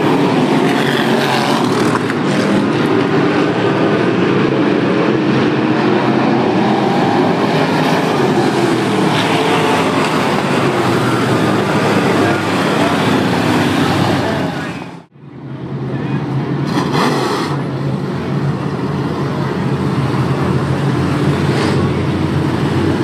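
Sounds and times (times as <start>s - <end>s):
race car engines droning: 0.0s - 23.0s.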